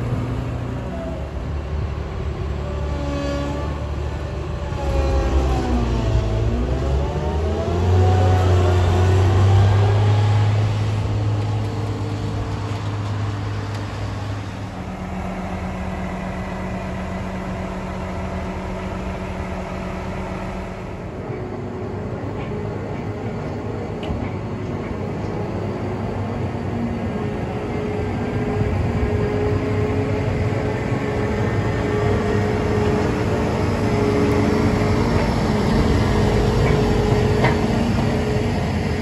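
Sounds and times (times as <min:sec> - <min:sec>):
combine harvester driving off: 0:03.6 - 0:39.0
combine harvester engine idling: 0:11.0 - 0:39.0.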